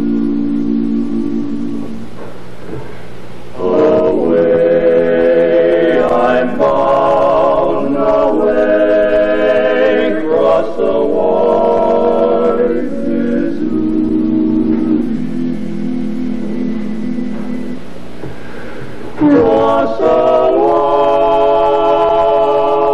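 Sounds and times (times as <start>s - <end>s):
male quartet singing a cappella: 3.6s - 16.9s, 19.0s - 22.9s.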